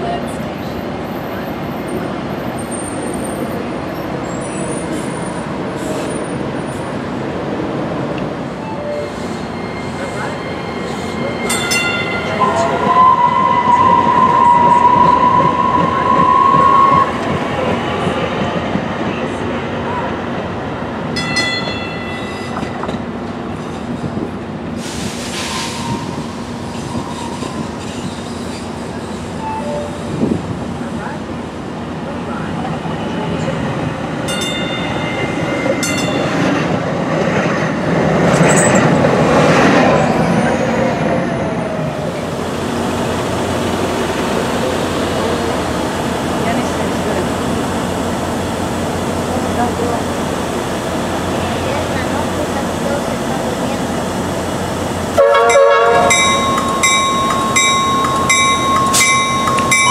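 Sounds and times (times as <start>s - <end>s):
light rail train running past: 0.0s - 59.9s
high wheel squeal: 8.6s - 17.1s, 24.9s - 30.2s
short rush of hiss: 24.8s - 26.2s.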